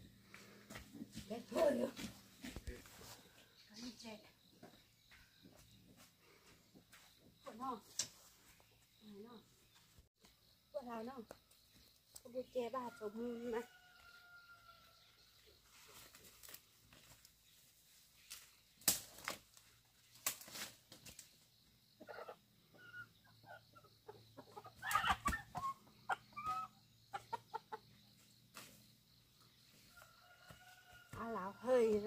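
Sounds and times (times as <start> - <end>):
chickens clucking and squawking: 21.9 - 28.3.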